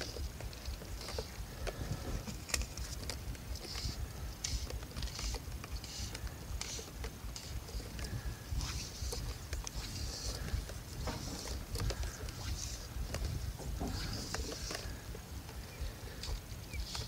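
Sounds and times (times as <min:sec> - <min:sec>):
fly line hissing through guides: 0:03.6 - 0:17.0
wind rumble on microphone: 0:07.8 - 0:16.8.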